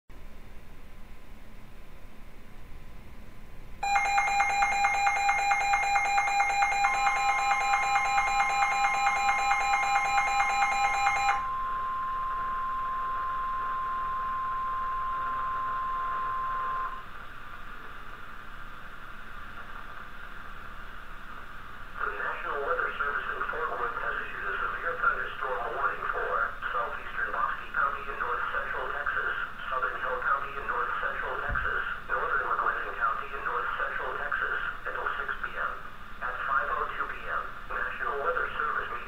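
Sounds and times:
steady warning alarm tone: 3.8 - 17.1
faint radio hiss: 11.4 - 39.0.

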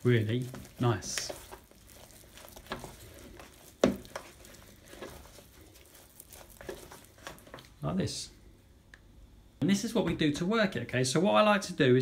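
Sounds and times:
dough squelching and scraping: 0.0 - 8.4.

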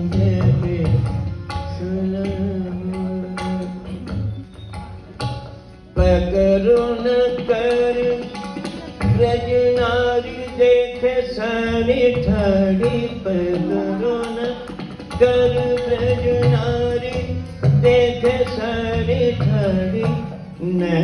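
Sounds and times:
elderly man singing into microphone: 0.0 - 4.2, 9.0 - 21.0.

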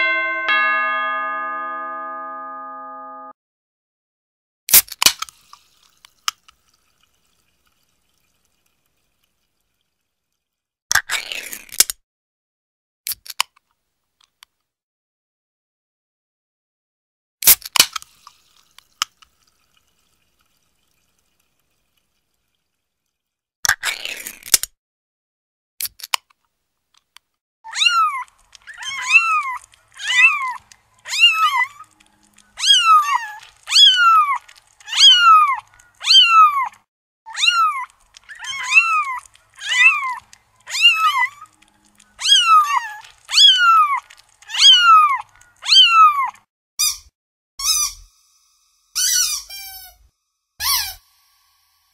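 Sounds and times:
cat meowing: 32.6 - 36.7, 37.3 - 41.4, 42.2 - 46.3.

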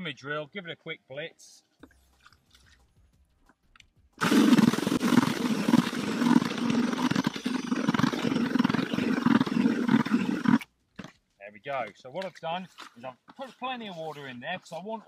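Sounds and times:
drill mixer churning in bucket: 4.2 - 11.1.

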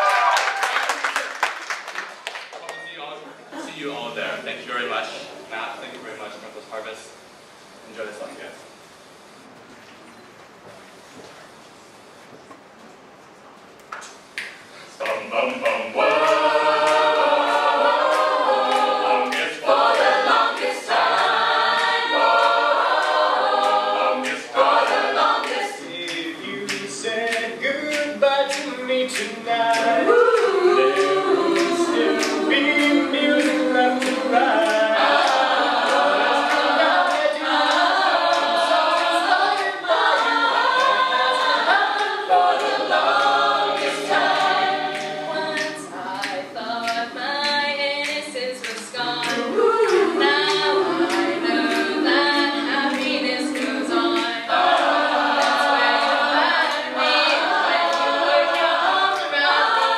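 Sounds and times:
sharp rhythmic clicks: 14.4 - 59.9
a cappella group singing: 14.8 - 59.9.

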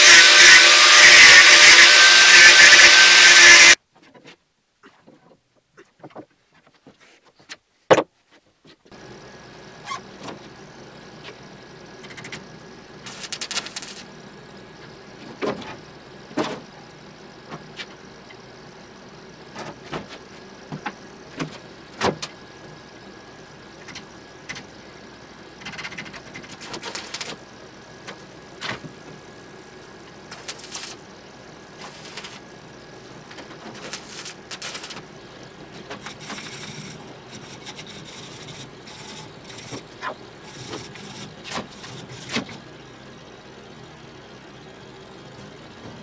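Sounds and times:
welding arc crackle: 13.0 - 14.1, 26.4 - 27.4, 30.3 - 31.0, 31.8 - 32.4, 33.7 - 35.0.

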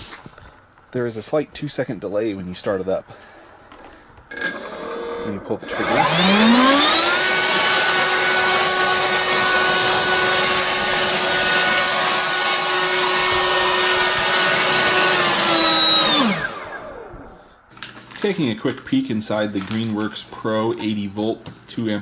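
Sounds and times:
leaf blower running: 4.3 - 17.5.

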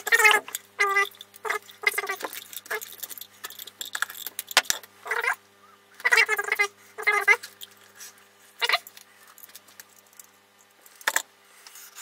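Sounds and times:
animal squeaking: 0.0 - 2.8, 5.0 - 7.5
faint steady hum: 0.0 - 12.0.

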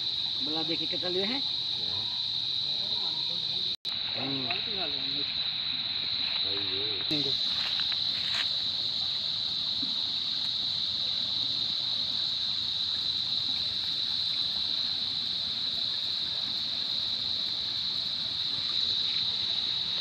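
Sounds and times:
flowing water hiss: 0.0 - 20.0
high-pitched insect drone: 0.0 - 20.0.

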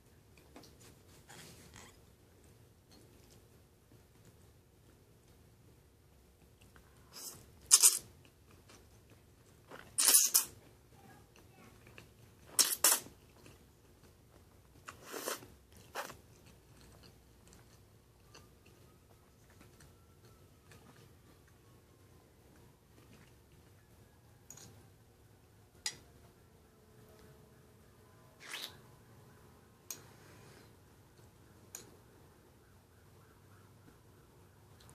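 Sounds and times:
quiet chewing: 6.0 - 10.0, 11.0 - 21.8, 22.4 - 24.9.

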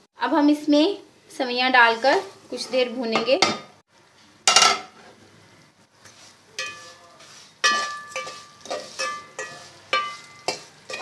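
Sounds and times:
metal spoon scraping metal pot: 6.6 - 11.0.

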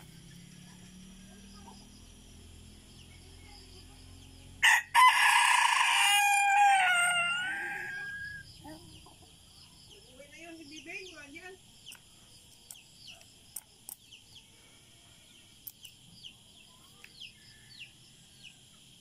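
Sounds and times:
rooster crowing: 4.6 - 8.5.

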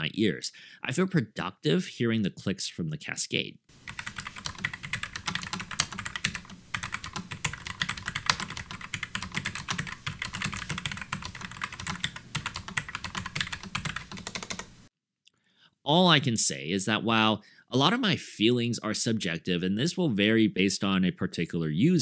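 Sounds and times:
fast typing on keyboard: 3.8 - 14.8.

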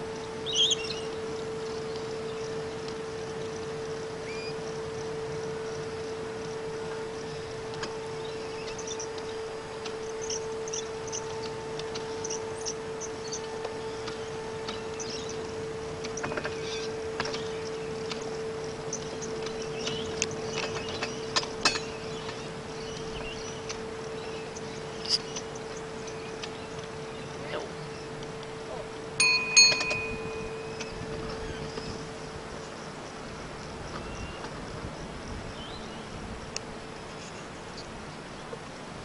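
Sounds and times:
wheels clicking on track: 0.0 - 38.8
model tram humming: 0.0 - 39.0
small birds chirping: 7.2 - 28.3.

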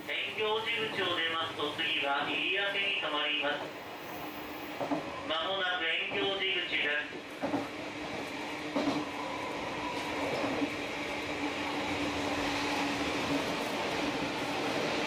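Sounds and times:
railcar engine drone: 0.0 - 15.0
train wheel and running noise: 0.0 - 15.0.

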